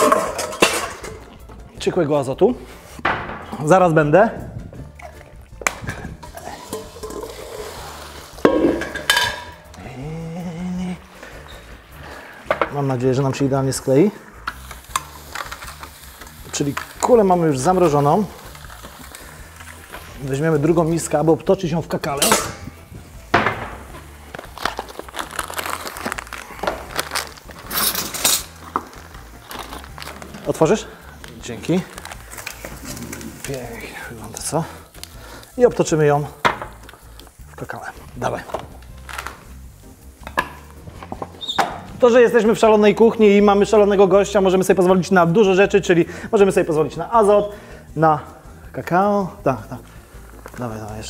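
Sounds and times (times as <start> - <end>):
metal bowls and utensils clattering: 0.0 - 1.5, 4.9 - 9.8, 21.9 - 25.7, 26.6 - 30.8
plastic bag crinkling: 14.6 - 20.8, 23.9 - 35.8, 37.7 - 39.6.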